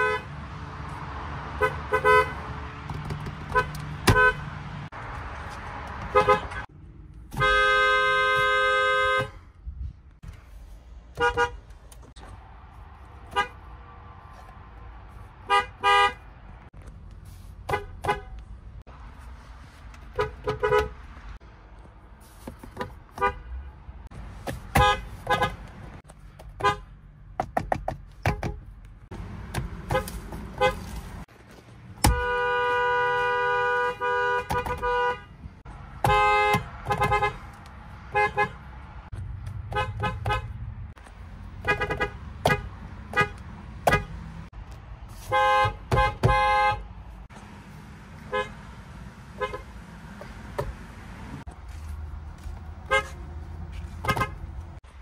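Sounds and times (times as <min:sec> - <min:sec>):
car horn toots: 0:00.0 - 0:00.3, 0:01.6 - 0:02.5, 0:03.5 - 0:04.5, 0:06.1 - 0:06.7, 0:07.3 - 0:09.4, 0:11.2 - 0:11.6, 0:15.5 - 0:16.2, 0:20.1 - 0:21.0, 0:24.7 - 0:25.6, 0:29.9 - 0:30.9, 0:32.0 - 0:35.3, 0:36.0 - 0:37.4, 0:38.1 - 0:38.6, 0:39.7 - 0:40.6, 0:41.6 - 0:44.2, 0:45.2 - 0:46.9, 0:48.2 - 0:48.6, 0:49.3 - 0:49.7, 0:52.9 - 0:53.2, 0:54.0 - 0:54.5
long car horn blast: 0:07.3 - 0:09.4, 0:32.0 - 0:35.3, 0:36.0 - 0:37.4, 0:45.2 - 0:46.8.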